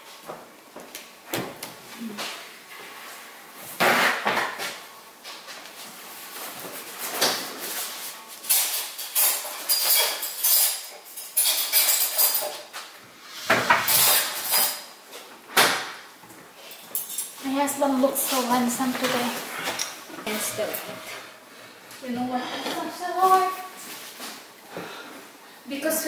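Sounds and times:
clatters and knocks of tableware: 0:08.5 - 0:12.7.

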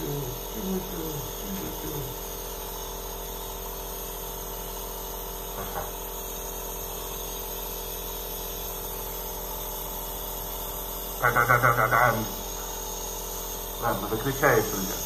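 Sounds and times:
voice-like sounds: 0:00.0 - 0:02.2
nebulizer compressor humming: 0:00.0 - 0:15.0.

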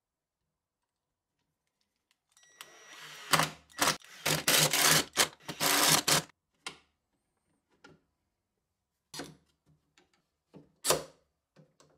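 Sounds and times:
cordless drill driving screw: 0:02.6 - 0:06.3.

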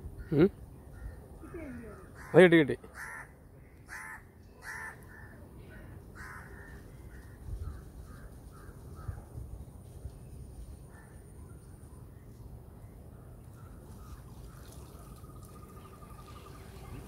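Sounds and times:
crow cawing: 0:01.0 - 0:05.4, 0:06.2 - 0:07.3.

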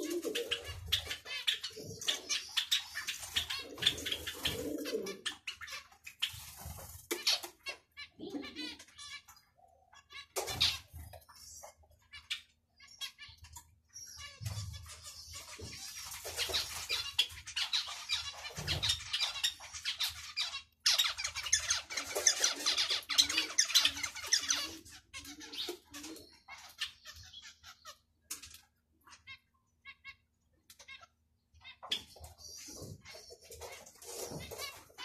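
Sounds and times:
finches chirping: 0:00.0 - 0:06.6, 0:07.2 - 0:28.1.

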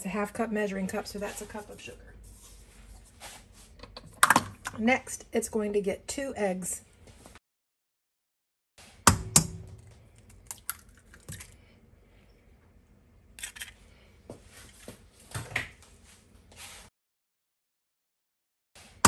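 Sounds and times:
egg cracking on metal bowl: 0:09.1 - 0:11.6.

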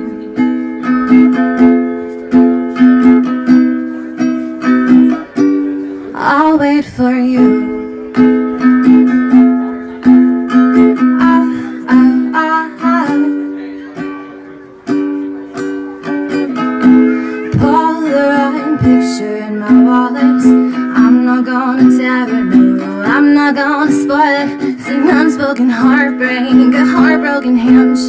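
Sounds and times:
ukulele strumming: 0:00.0 - 0:28.0
person singing: 0:10.0 - 0:14.4, 0:16.0 - 0:28.0.

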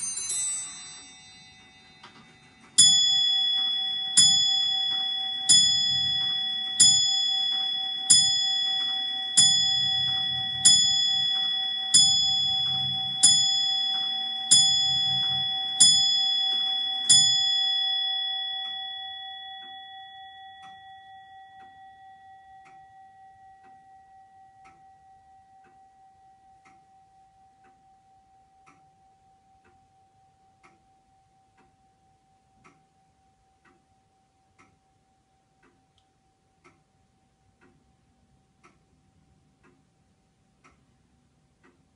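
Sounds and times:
clock bell striking: 0:00.0 - 0:31.8
clock ticking: 0:00.0 - 0:41.9.

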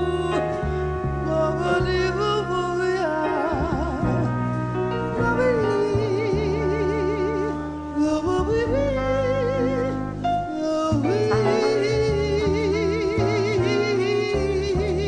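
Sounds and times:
jazz band accompaniment: 0:00.0 - 0:15.0
trumpet: 0:00.0 - 0:15.0
woman singing with vibrato: 0:05.2 - 0:15.0.

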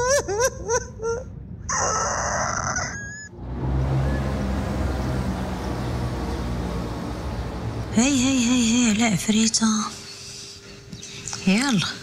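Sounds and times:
street traffic rumble: 0:02.6 - 0:12.0.

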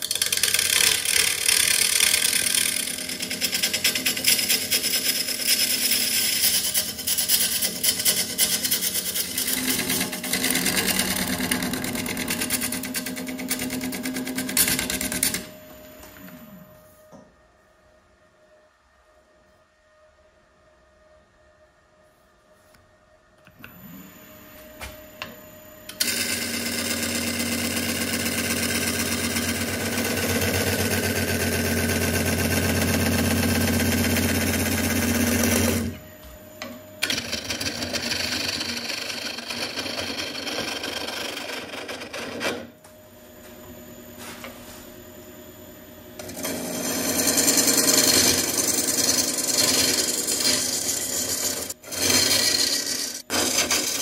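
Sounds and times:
wood lathe running: 0:00.0 - 0:15.5, 0:25.9 - 0:36.0, 0:37.0 - 0:42.7, 0:46.2 - 0:54.0
lathe tool cutting with chatter: 0:26.0 - 0:35.9, 0:37.0 - 0:42.4, 0:46.2 - 0:54.0.

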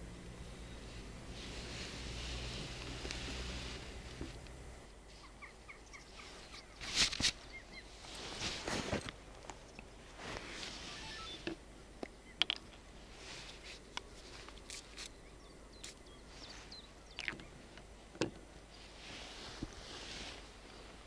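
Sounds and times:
soft hiss: 0:00.0 - 0:21.0
small clicks and knocks: 0:11.4 - 0:12.8.

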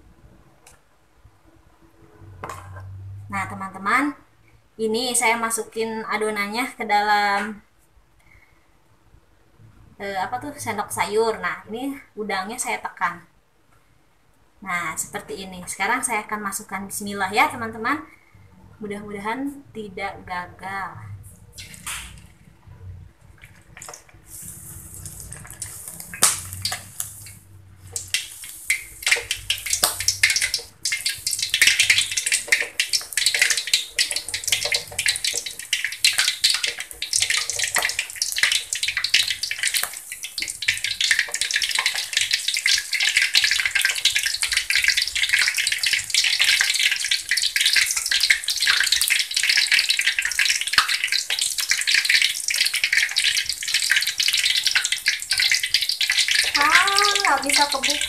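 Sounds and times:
hot oil sizzling and crackling: 0:21.4 - 0:22.4, 0:23.2 - 0:58.0.

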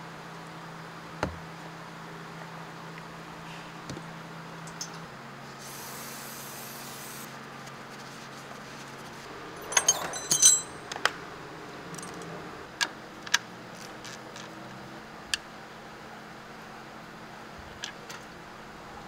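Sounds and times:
metal tools clinking: 0:09.6 - 0:11.1, 0:11.9 - 0:12.3.

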